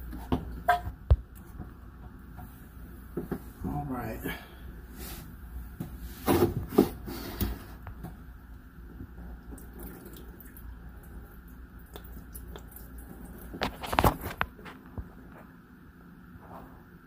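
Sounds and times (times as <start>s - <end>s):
water trickling and dripping: 9.1s - 13.6s.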